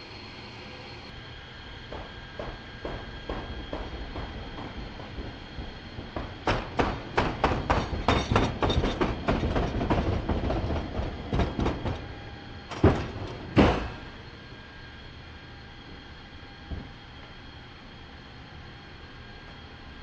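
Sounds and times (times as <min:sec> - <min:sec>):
loud knocks: 0:01.9 - 0:12.0, 0:12.7 - 0:14.1
pallet clacking over metal rollers: 0:03.9 - 0:12.1, 0:12.7 - 0:14.2.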